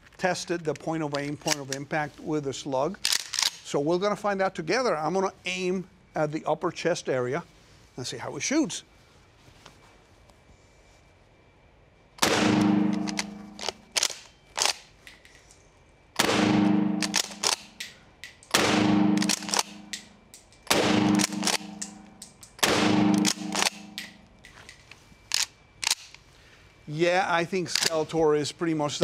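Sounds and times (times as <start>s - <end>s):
shotgun shots: 12.2s - 13.7s, 16.2s - 17.8s, 18.5s - 20.0s, 20.7s - 24.2s.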